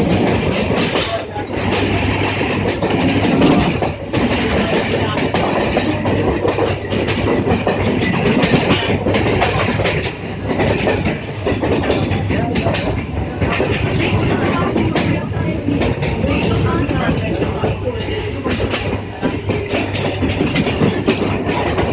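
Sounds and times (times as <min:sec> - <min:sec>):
train rumble: 0:00.0 - 0:21.9
wheels clattering over rail joints: 0:00.0 - 0:21.9.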